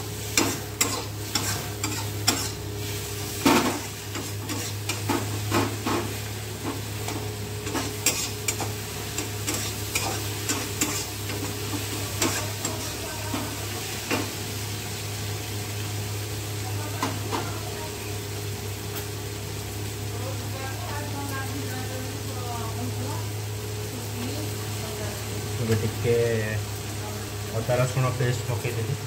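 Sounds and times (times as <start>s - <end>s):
oil sizzling: 0.0s - 29.0s
metal spoon scraping a pan: 0.3s - 2.7s, 3.4s - 13.5s.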